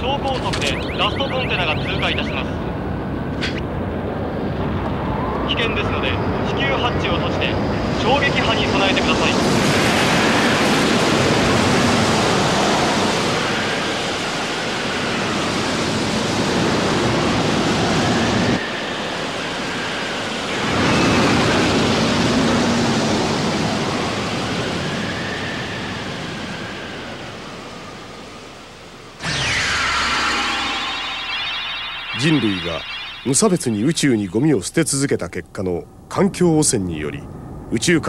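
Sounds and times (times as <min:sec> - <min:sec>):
rushing roar of shock wave: 0:29.2 - 0:34.4.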